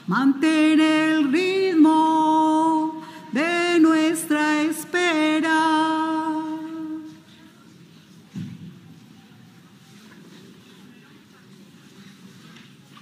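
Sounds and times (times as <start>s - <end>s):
person singing a hymn unaccompanied: 0.0s - 7.5s.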